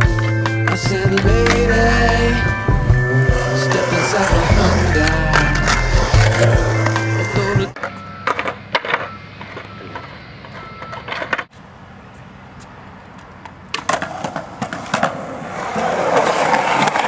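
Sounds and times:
skateboard wheels rolling on pavement: 0:00.0 - 0:17.0
skateboard clacks: 0:03.4 - 0:11.5, 0:13.2 - 0:17.0.

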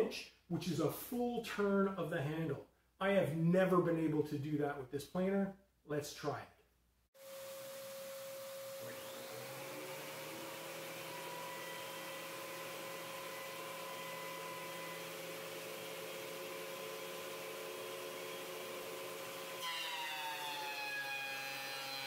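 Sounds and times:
thickness planer running: 0:07.2 - 0:22.0.

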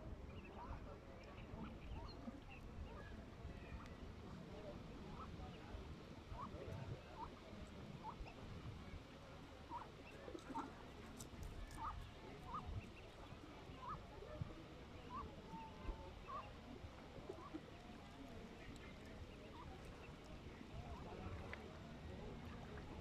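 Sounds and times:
ducklings peeping: 0:11.6 - 0:14.0.

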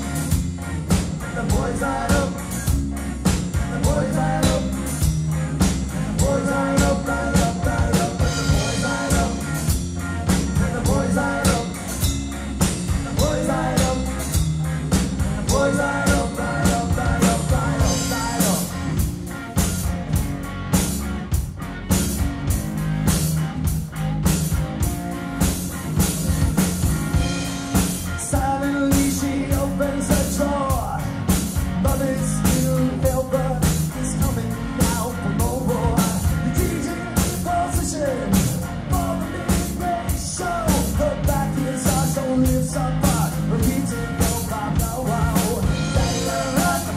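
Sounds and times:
bass guitar: 0:00.0 - 0:46.9
drum kit beat: 0:00.0 - 0:46.9
electric guitar: 0:00.0 - 0:46.9
man singing: 0:01.2 - 0:02.6, 0:03.6 - 0:04.9, 0:06.1 - 0:09.7, 0:10.5 - 0:12.0, 0:13.0 - 0:14.4, 0:15.4 - 0:18.8, 0:28.2 - 0:31.1, 0:31.8 - 0:46.9.

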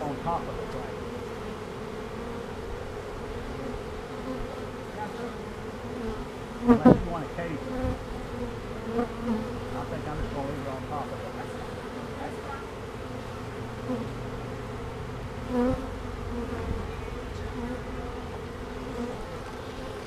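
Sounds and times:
bees buzzing: 0:00.0 - 0:20.0.

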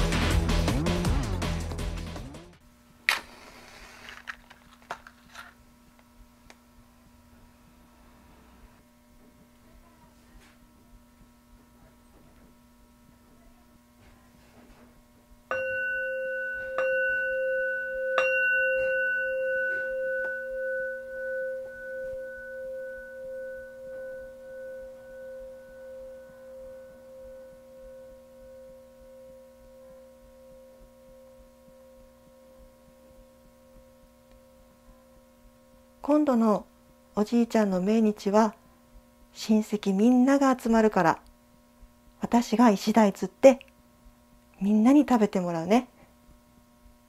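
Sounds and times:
faint steady hum: 0:02.6 - 0:47.0
altar bell ringing: 0:15.5 - 0:33.1.

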